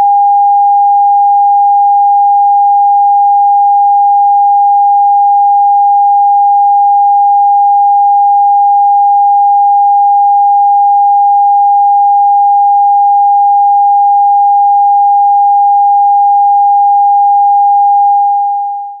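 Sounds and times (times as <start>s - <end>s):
sine test tone: 0.0s - 19.0s.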